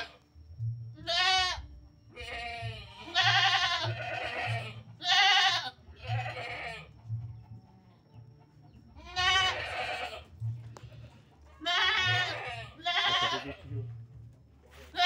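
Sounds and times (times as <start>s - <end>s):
goat bleating: 0.0s - 0.2s, 1.0s - 7.1s, 9.0s - 14.0s, 14.7s - 15.0s.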